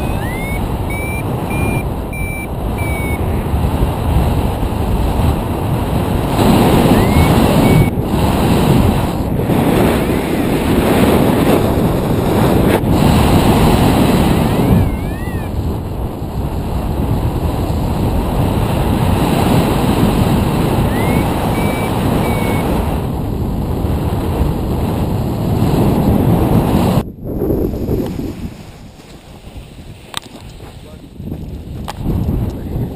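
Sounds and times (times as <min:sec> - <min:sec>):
wind buffeting microphone: 0:00.0 - 0:32.9.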